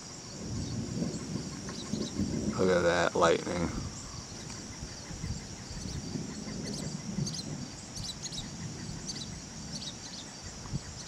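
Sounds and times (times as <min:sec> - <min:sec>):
distant thunder rumbling: 0:00.0 - 0:11.0
insects droning: 0:00.0 - 0:11.0
bird chirps: 0:03.8 - 0:11.0.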